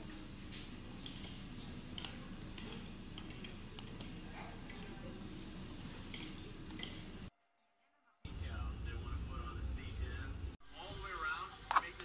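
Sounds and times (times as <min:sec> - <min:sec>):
cutlery clinking on plate: 0:06.1 - 0:07.1.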